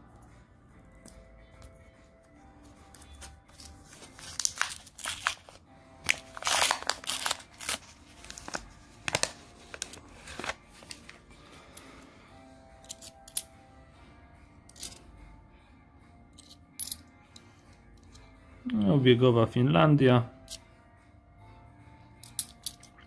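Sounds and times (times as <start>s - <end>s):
soft background music: 0.0s - 23.0s
paper wrapper tearing and crinkling: 3.2s - 11.2s
coins clicking together: 12.8s - 13.5s, 14.7s - 15.0s, 16.3s - 17.1s, 22.2s - 23.0s.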